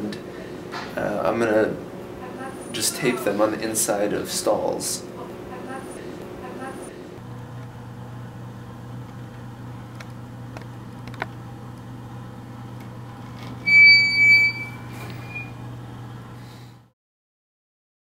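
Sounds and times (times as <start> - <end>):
loud high-pitched squeal: 13.6 - 15.6
short rising squeak: 13.6 - 15.6.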